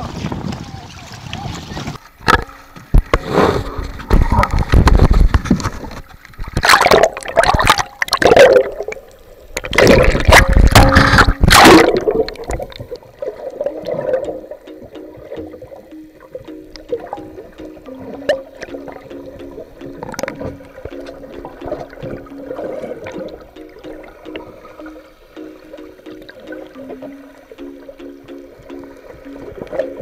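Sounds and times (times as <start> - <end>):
water splashing and gurgling: 0.0 - 30.0.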